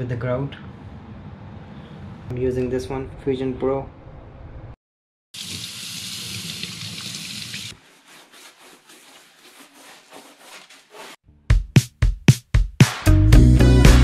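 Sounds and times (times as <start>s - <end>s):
water running from a tap: 5.4s - 7.7s
sponge rubbing on tiles: 7.3s - 11.2s.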